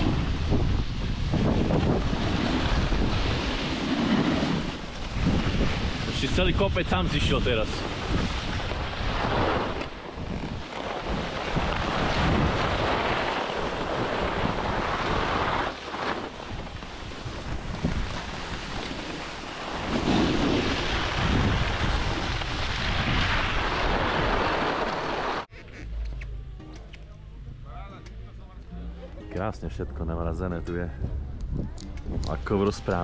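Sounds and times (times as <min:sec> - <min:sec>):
wind buffeting microphone: 0:00.0 - 0:25.1, 0:31.0 - 0:33.0
skis sliding over snow: 0:00.0 - 0:25.5.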